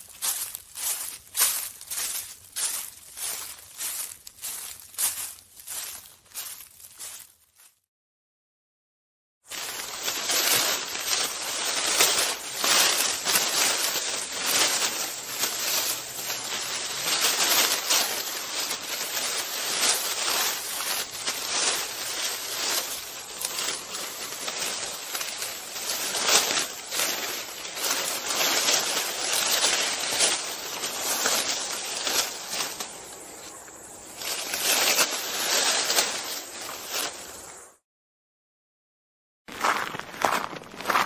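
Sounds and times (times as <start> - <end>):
footsteps walking: 0.0 - 7.8, 9.5 - 37.5, 39.5 - 41.0.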